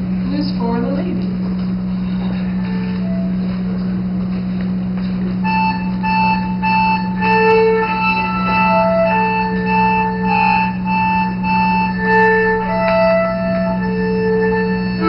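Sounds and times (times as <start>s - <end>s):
cello holding low note: 1.8s - 4.2s, 5.4s - 15.0s
accordion melody: 1.8s - 15.0s.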